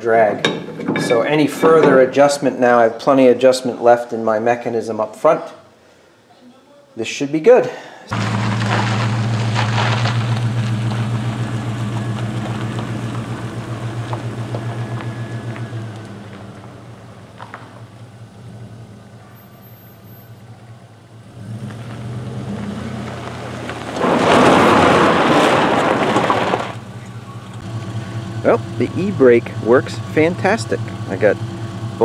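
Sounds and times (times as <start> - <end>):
tyres sliding on gravel: 8.1 - 18.0, 21.4 - 27.6
truck engine running: 8.1 - 32.0.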